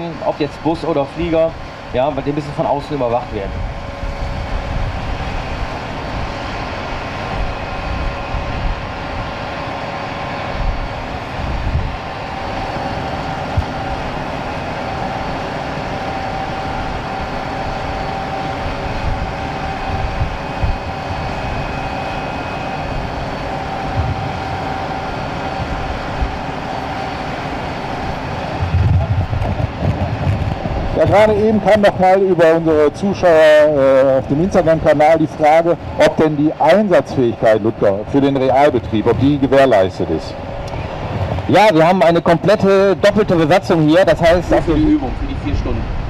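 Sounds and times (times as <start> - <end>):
high whining tones: 0.0 - 46.0
machinery hum: 0.0 - 46.0
low rumble: 18.8 - 26.4, 27.9 - 33.4.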